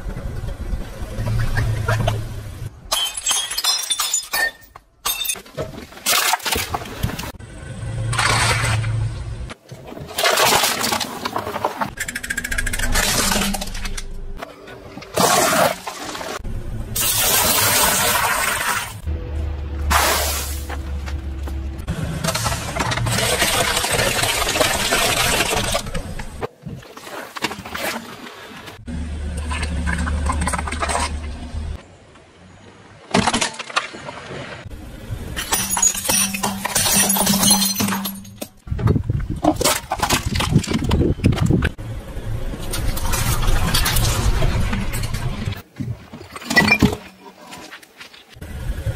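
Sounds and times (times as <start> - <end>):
ceramic saucers shattering: 2.9 - 5.5, 35.4 - 38.6
tyres squishing water: 22.3 - 31.8.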